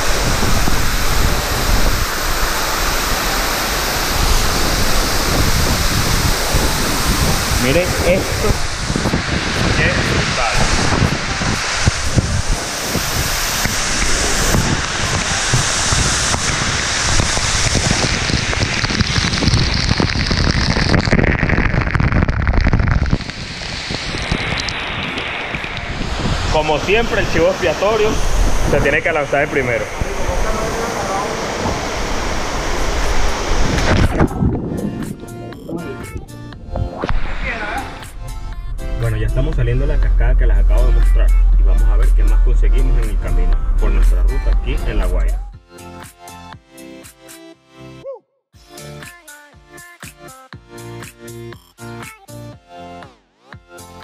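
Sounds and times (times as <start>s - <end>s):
waterfall pouring onto rocks: 0.0s - 34.3s, 39.0s - 45.4s.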